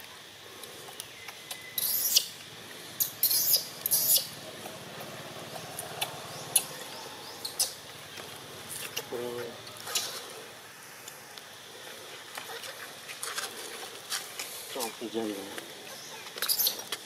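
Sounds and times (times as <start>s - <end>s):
baby monkey squealing: 1.8s - 2.4s, 3.0s - 4.4s, 6.5s - 6.8s, 7.4s - 7.8s, 16.4s - 16.8s.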